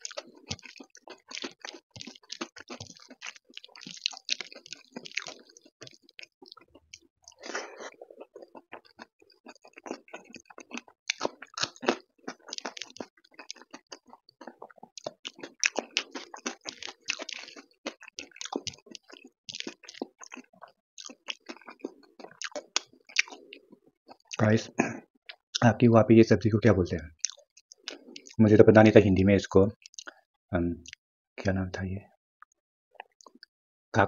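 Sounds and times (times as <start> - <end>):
close-up chewing with crunches: 0.0 - 24.4, 27.2 - 28.4, 29.8 - 30.2, 33.0 - 33.5.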